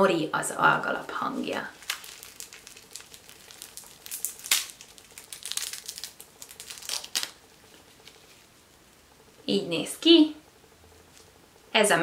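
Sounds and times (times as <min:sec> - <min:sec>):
dried seaweed crackling: 0:01.3 - 0:09.0.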